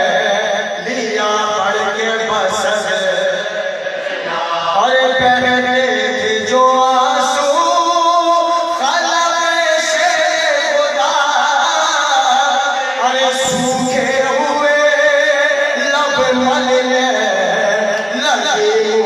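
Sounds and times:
men chanting melodic elegy: 0.0 - 19.0.

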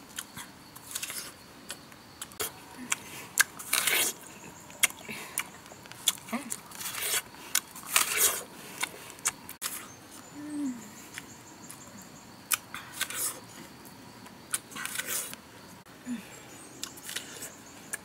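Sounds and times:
apple crunching and chewing: 0.0 - 10.2, 12.5 - 15.4, 16.7 - 18.0.

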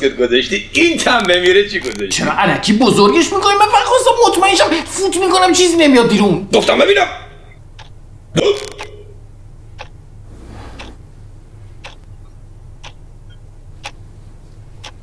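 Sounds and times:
faint short clicks: 7.8 - 9.0
hiccup-like gulp: 8.4 - 9.0.

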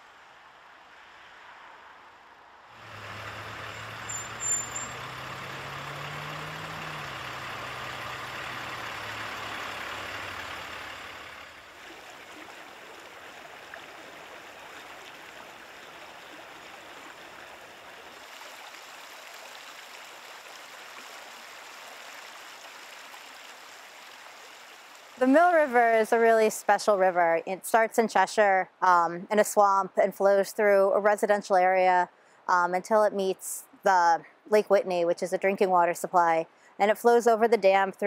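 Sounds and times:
passing vehicle engine hum: 0.2 - 13.0
stream rushing: 2.7 - 26.2
brief high squeak: 3.7 - 5.0.

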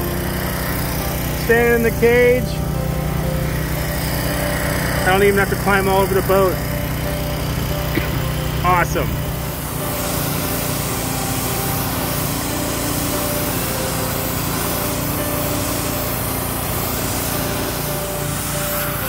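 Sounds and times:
pressure washer engine humming: 0.0 - 19.0
water spray hissing: 0.0 - 19.0.

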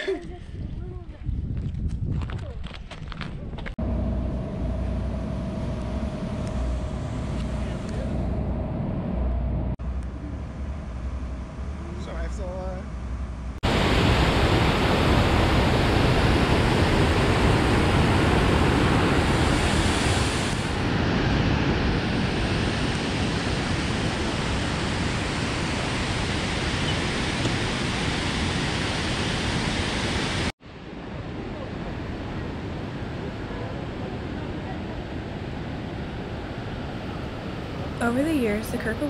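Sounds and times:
soft rush of water: 13.6 - 20.8.

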